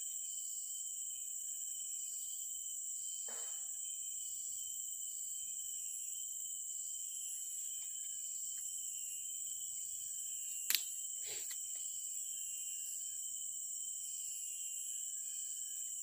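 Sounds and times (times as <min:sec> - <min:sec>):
high-pitched insect chorus: 0:00.0 - 0:16.0
sharp click: 0:10.7 - 0:11.6.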